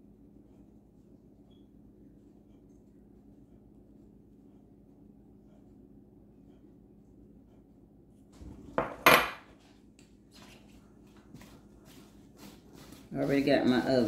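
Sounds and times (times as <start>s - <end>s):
glass bowl knocking on countertop: 8.8s - 9.4s.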